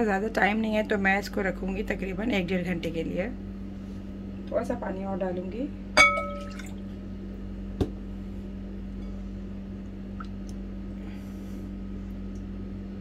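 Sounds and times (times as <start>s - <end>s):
steady low hum: 0.0s - 13.0s
glass clinking against glass bowl: 6.0s - 6.7s
water pouring: 6.3s - 6.8s.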